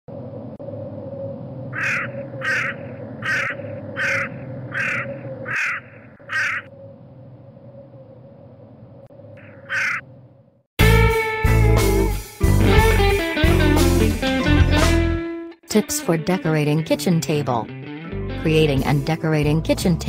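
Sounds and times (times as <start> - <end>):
steady low hum: 0.1 - 10.7
bird harsh calls: 1.7 - 6.7, 9.4 - 10.1.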